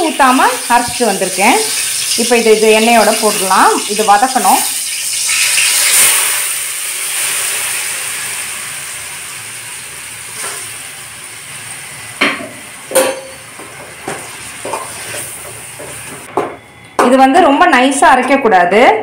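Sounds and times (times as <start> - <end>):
paste sizzling in hot oil: 0.0 - 16.3
metal ladle scraping pan: 14.1 - 16.3.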